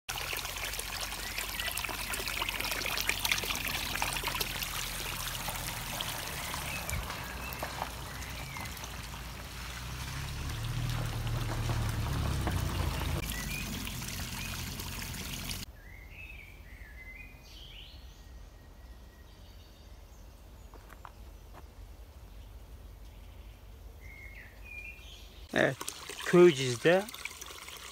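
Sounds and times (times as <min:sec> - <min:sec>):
water pouring into a trough: 0:00.1 - 0:15.7, 0:25.5 - 0:27.9
birds chirping: 0:01.0 - 0:27.1.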